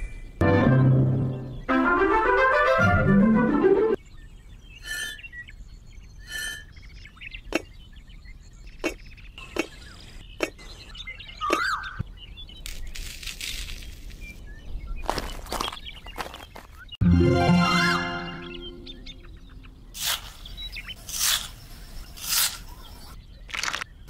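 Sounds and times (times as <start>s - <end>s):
birds chirping: 3.9s - 24.0s
bricks clicking on sand: 23.5s - 23.9s.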